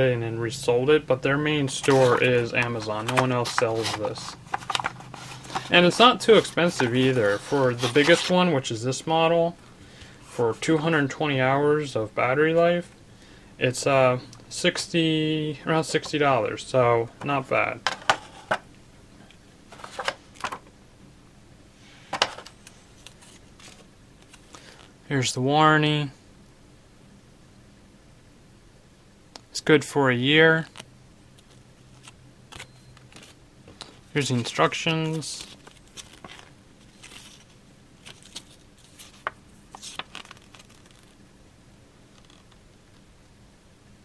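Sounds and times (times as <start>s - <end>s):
paper and cardboard rustling: 1.5s - 8.6s, 19.7s - 20.6s, 22.1s - 24.8s, 31.4s - 41.2s.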